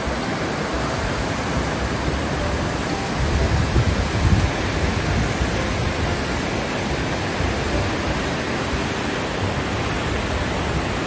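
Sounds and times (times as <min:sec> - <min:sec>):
waterfall rushing water: 0:00.0 - 0:11.0.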